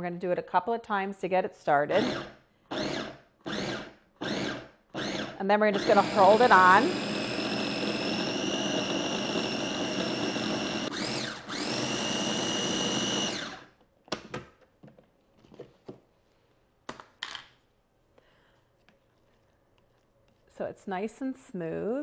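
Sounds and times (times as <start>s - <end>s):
blender motor whining: 1.9s - 13.8s.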